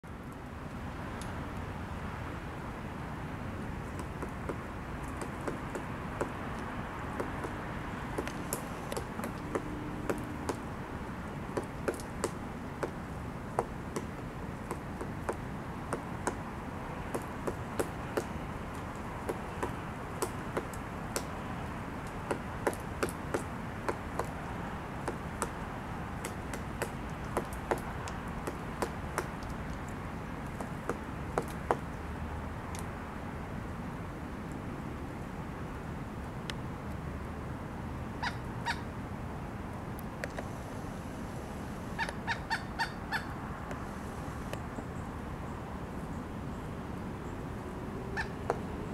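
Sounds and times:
woodpecker knocking on wood: 0:03.9 - 0:10.7, 0:11.5 - 0:16.4, 0:17.1 - 0:18.4, 0:19.2 - 0:21.4, 0:22.1 - 0:25.6, 0:26.2 - 0:31.9, 0:48.2 - 0:48.6.

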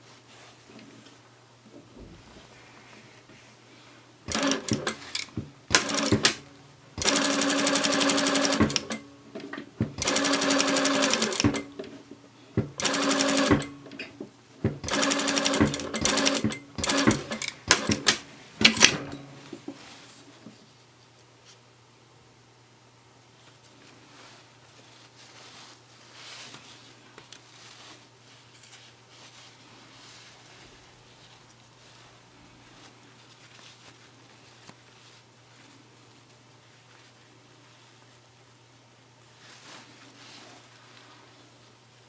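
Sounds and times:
sewing machine stitching: 0:04.3 - 0:09.1, 0:09.8 - 0:12.0, 0:12.6 - 0:14.1, 0:14.7 - 0:19.3.

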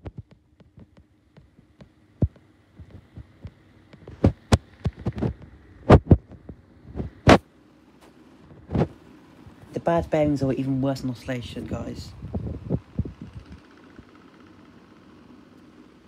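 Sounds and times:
fan knocks and clicks: 0:00.0 - 0:07.4, 0:11.6 - 0:14.3
desk fan humming: 0:00.0 - 0:16.0.

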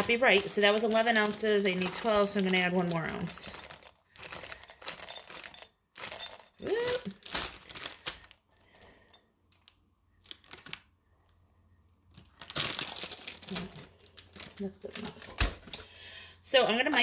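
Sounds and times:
plastic bag crinkling: 0:00.0 - 0:10.9, 0:12.1 - 0:15.8
person humming: 0:06.6 - 0:07.2.

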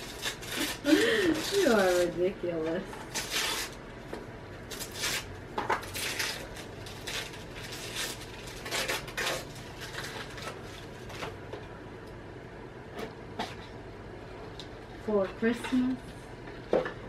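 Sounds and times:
wrapping paper tearing and crinkling: 0:00.0 - 0:03.9, 0:04.6 - 0:11.5.

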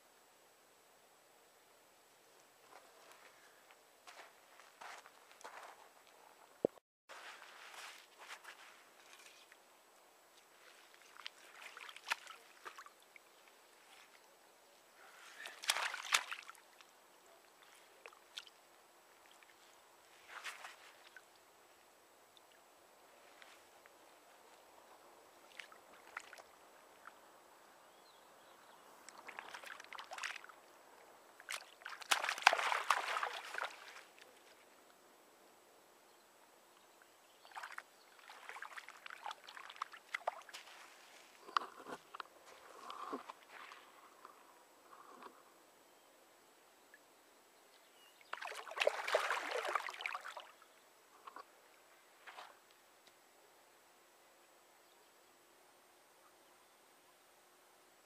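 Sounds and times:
water dripping and sloshing: 0:10.6 - 0:14.2, 0:15.4 - 0:16.9, 0:25.4 - 0:27.2, 0:29.0 - 0:30.6, 0:31.4 - 0:34.2, 0:37.4 - 0:42.2, 0:42.8 - 0:44.3, 0:48.3 - 0:50.6
fish splashing: 0:31.6 - 0:34.1, 0:48.4 - 0:50.5
fish splashing at water surface: 0:31.8 - 0:34.0.

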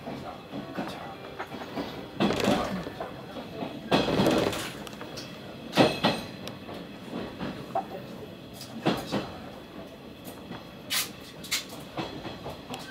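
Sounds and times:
train rumble inside carriage: 0:00.0 - 0:12.9
wheels clattering over rail joints: 0:01.4 - 0:07.6.

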